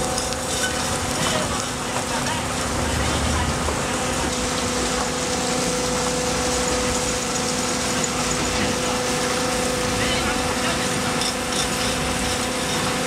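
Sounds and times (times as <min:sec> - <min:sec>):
conveyor belt running: 0:00.0 - 0:13.0.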